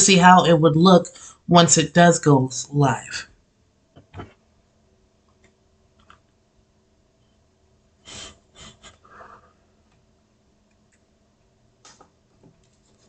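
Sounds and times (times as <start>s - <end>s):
faint steady hum: 0.0s - 13.0s
person breathing: 1.1s - 1.5s, 8.0s - 9.8s.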